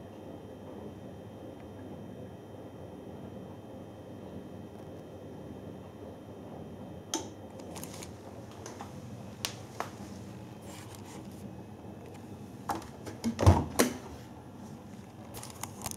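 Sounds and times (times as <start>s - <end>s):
washing machine door opening: 12.6s - 14.2s.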